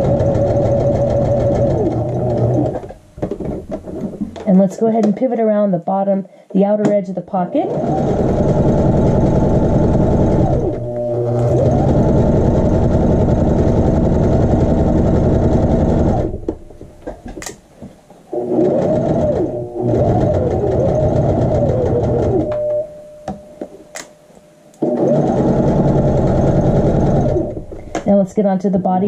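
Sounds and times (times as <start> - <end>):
sewing machine stitching: 0.0 - 3.0, 7.6 - 16.6, 18.3 - 22.6, 24.8 - 27.7.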